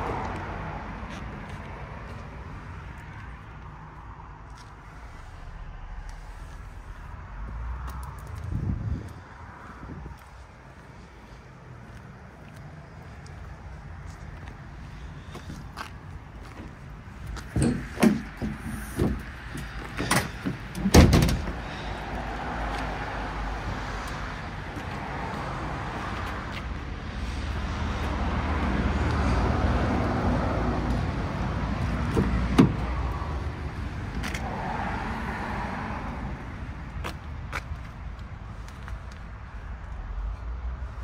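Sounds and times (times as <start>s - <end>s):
truck tailgate clicks and clunks: 17.4s - 21.6s, 32.1s - 32.9s
loud thump: 20.0s - 21.6s, 32.1s - 32.9s.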